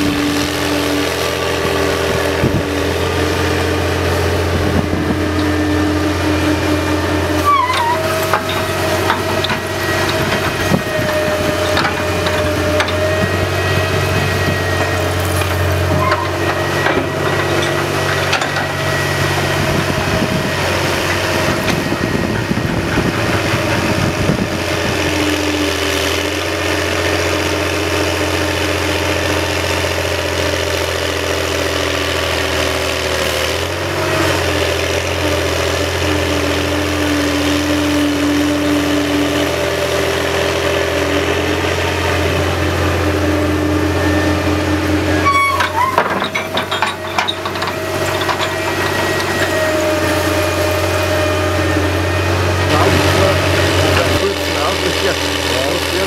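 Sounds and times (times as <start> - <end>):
dragline engine running: 0.0 - 56.0
gritty clattering noise: 7.4 - 13.2, 45.2 - 50.5.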